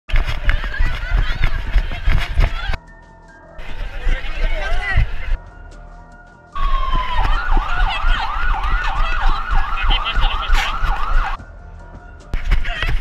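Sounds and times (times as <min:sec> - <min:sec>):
siren yelping: 0:06.6 - 0:11.4.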